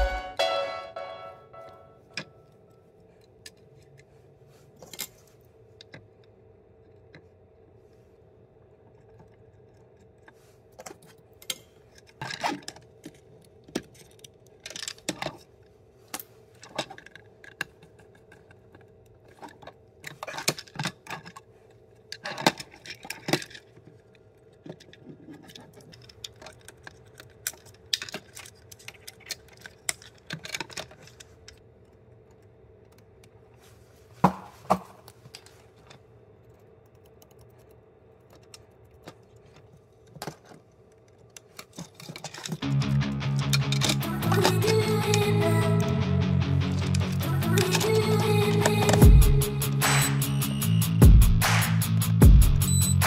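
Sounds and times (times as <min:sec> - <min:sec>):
faint hum: 0:00.0 - 0:51.6
hands handling wires clicking: 0:16.1 - 0:33.5.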